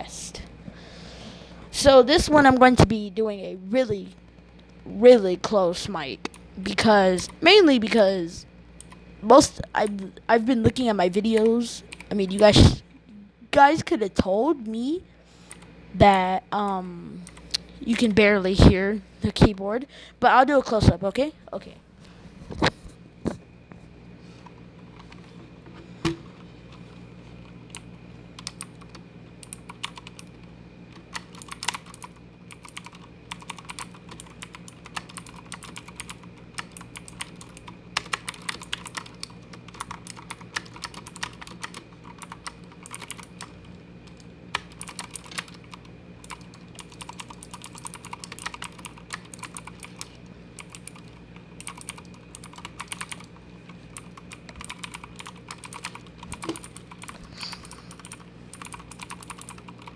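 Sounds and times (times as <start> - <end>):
mechanical keyboard keys clacking: 28.4 - 30.2, 31.0 - 43.5, 44.1 - 57.2, 57.9 - 59.9.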